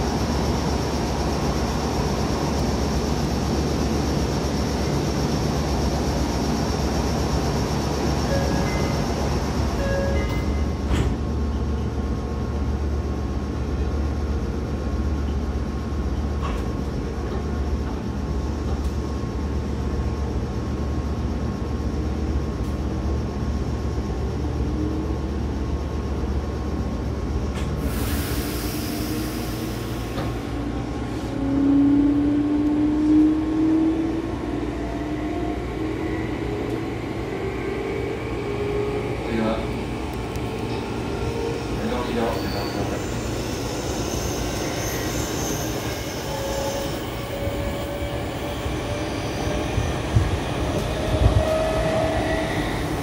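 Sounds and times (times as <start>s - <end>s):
electric train humming: 0.0s - 53.0s
hiss of released air: 27.8s - 30.5s.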